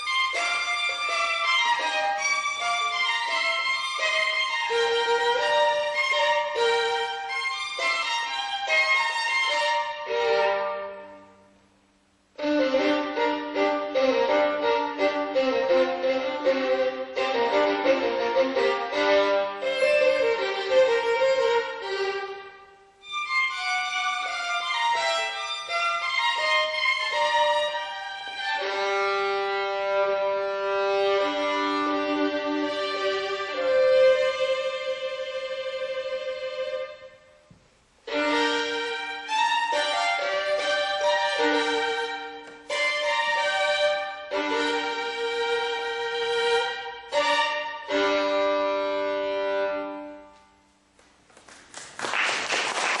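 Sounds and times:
solo violin playing: 0:00.0 - 0:11.6, 0:12.3 - 0:50.8
audience applause: 0:51.3 - 0:53.0.

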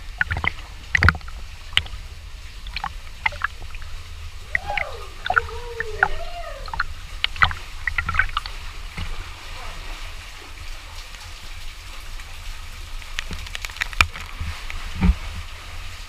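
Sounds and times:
wading splashes in water: 0:00.0 - 0:16.0
voice making gliding calls: 0:04.5 - 0:08.3.

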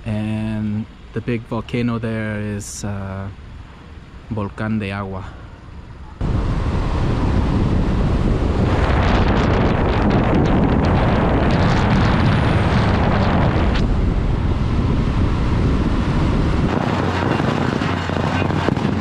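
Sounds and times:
motorcycle engine and road noise: 0:05.1 - 0:19.0
wind buffeting microphone: 0:05.1 - 0:19.0.

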